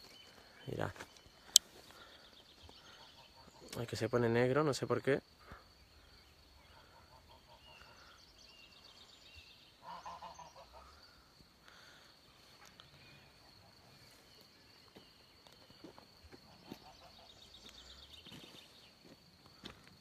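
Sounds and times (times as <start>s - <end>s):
geese honking: 9.8s - 10.9s.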